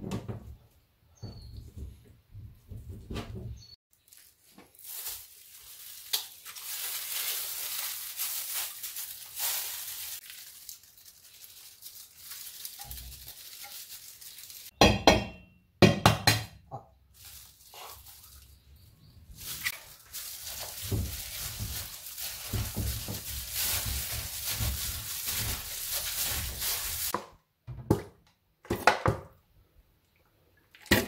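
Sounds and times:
food rustling and scraping in bowl: 19.4 - 27.1.

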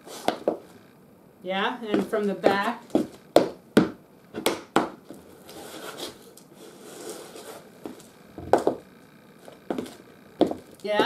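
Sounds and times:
tap shoes scuffing on floor: 0.0 - 0.7, 1.9 - 6.2, 7.1 - 11.0
sharp tap shoe taps: 1.9 - 5.1.

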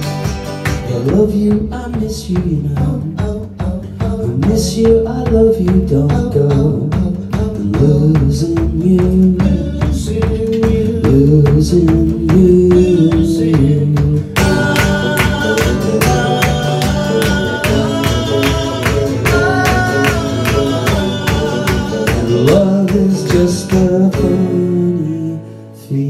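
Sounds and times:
electric bass: 0.0 - 25.3
drums: 0.0 - 25.6
strummed acoustic guitar: 0.0 - 26.0.

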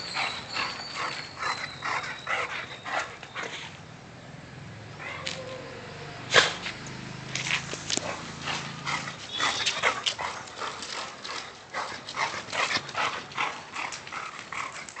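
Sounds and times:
puppies yipping and whimpering: 0.0 - 3.6.

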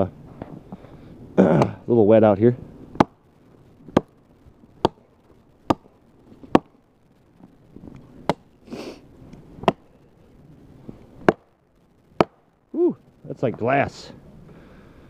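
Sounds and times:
axe chopping log: 1.4 - 1.8, 2.9 - 3.2, 3.9 - 4.1, 4.8 - 5.0, 5.6 - 6.7, 9.6 - 9.9, 11.2 - 11.5, 12.2 - 12.4.

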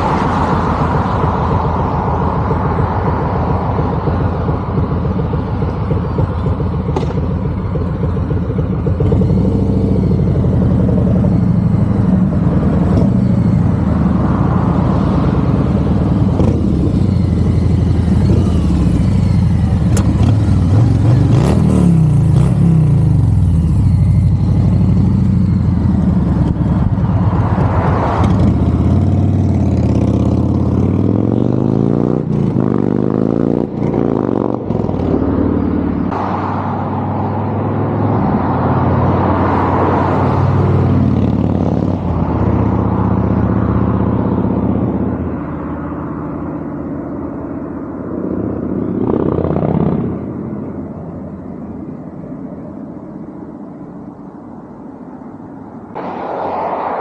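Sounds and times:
motorcycle engine passing by: 14.8 - 36.1.

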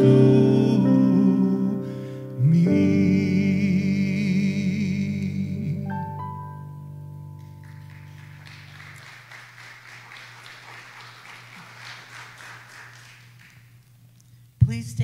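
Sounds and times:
piano chord: 0.0 - 8.9
light applause: 7.4 - 14.1.

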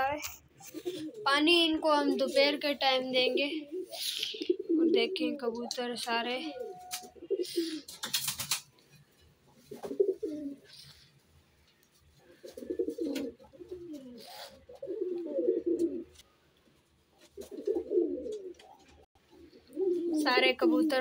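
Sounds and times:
pigeons cooing: 0.6 - 8.1, 9.6 - 11.2, 12.0 - 16.3, 17.2 - 21.0
wings fluttering: 6.8 - 10.9.

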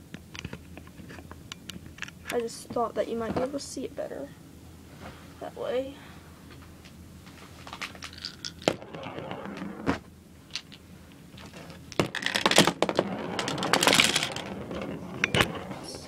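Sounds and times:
plastic marbles clicking and clattering: 11.9 - 15.5.

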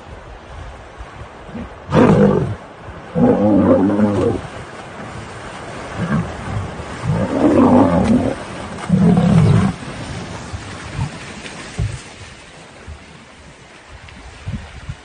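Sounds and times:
large animal roaring: 1.5 - 4.4, 6.0 - 9.8
water splashing: 1.5 - 13.9.

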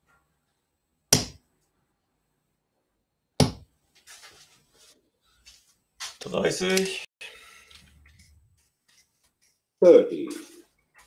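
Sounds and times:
darts striking dartboard: 1.1 - 1.4, 3.4 - 3.7.

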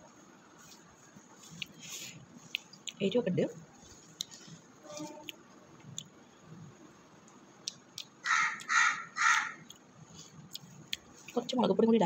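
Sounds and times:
crow cawing: 8.2 - 9.6.

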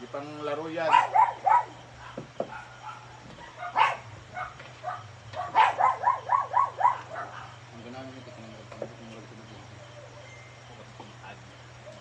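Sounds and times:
dog barking: 0.8 - 7.6.

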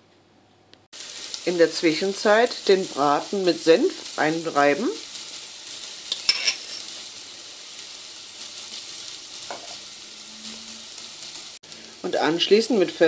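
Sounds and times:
onion sizzling in oil: 0.9 - 13.0
spoon clinking on glass bowl: 6.1 - 6.8.

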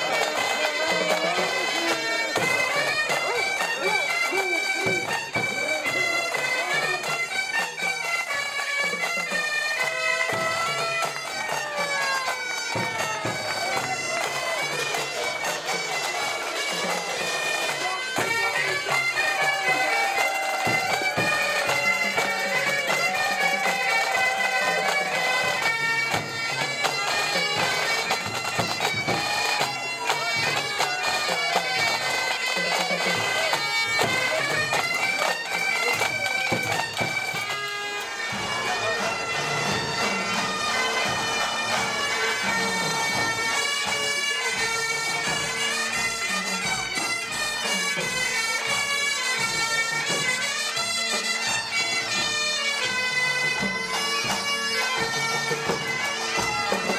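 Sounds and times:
bagpipes playing: 0.0 - 56.9.

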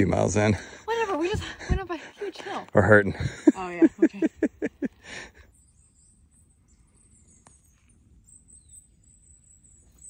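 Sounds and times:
faint high-pitched chirping: 5.4 - 10.0.

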